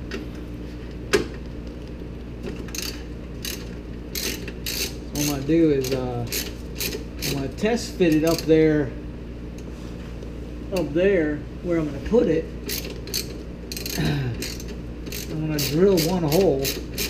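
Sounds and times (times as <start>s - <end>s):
ratchet clicking: 2.7s - 7.4s, 12.7s - 17.0s.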